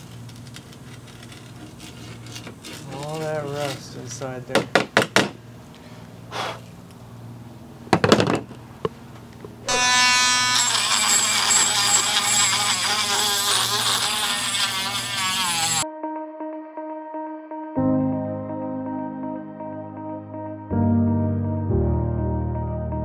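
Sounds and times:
rotary tool grinding: 0:00.0 - 0:03.9, 0:09.7 - 0:15.8
steel scraper on metal: 0:00.9 - 0:03.8, 0:09.7 - 0:15.8
soft music: 0:15.8 - 0:23.0.

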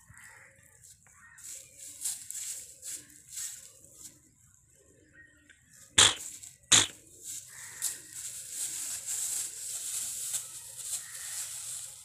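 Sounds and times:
loud short puffs: 0:06.0 - 0:07.0
straw rustling and crackling: 0:06.0 - 0:12.0.

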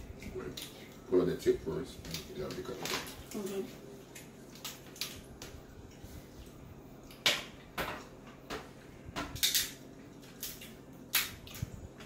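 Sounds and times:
crab shells cracking: 0:04.1 - 0:05.5, 0:09.3 - 0:11.7.

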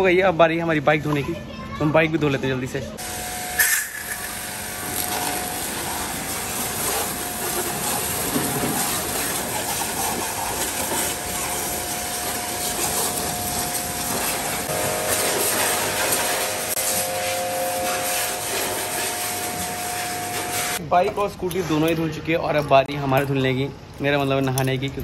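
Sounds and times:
pressure washer pump humming: 0:03.0 - 0:20.8
water jet spraying: 0:03.0 - 0:20.8.

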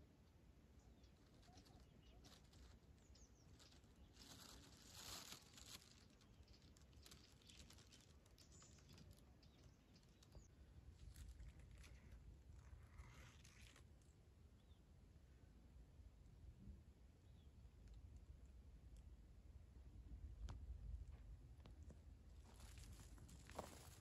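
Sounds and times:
faint crackling and rustling: 0:00.2 - 0:14.8, 0:20.0 - 0:24.0.

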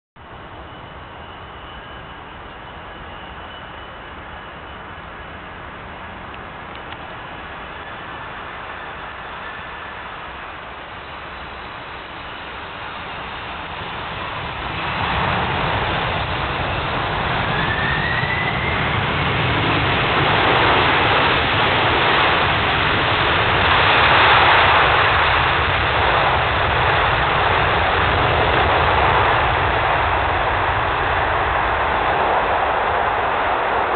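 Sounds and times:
jet engines in reverse thrust: 0:00.2 - 0:33.9
short rising whine: 0:07.2 - 0:21.4.

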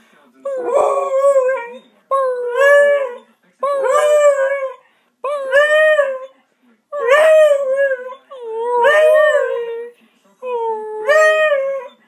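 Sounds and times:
dog howling: 0:00.5 - 0:06.3, 0:07.0 - 0:09.9, 0:10.5 - 0:11.9.

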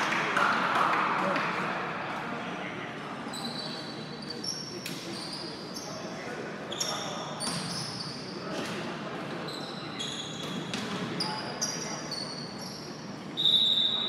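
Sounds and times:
murmur of voices: 0:00.0 - 0:14.0
shoes squeaking on gym floor: 0:03.3 - 0:08.7, 0:09.4 - 0:14.0.

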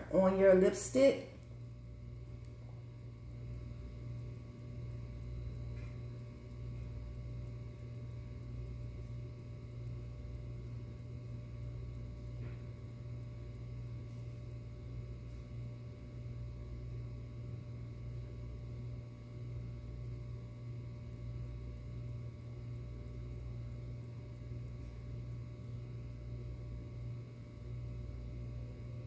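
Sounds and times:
low hum: 0:00.0 - 0:29.0.

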